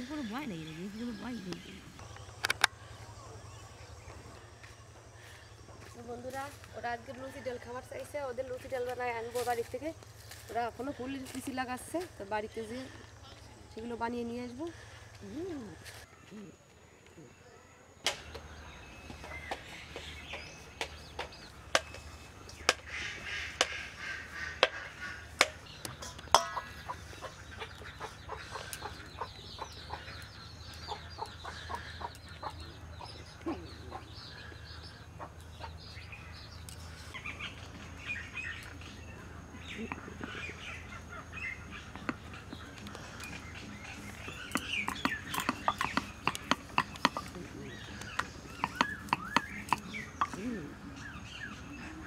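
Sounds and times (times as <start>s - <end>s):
small birds chirping: 0.0s - 52.0s
chickens clucking: 19.1s - 36.0s, 37.4s - 52.0s
dough clicks and knocks: 44.2s - 50.4s.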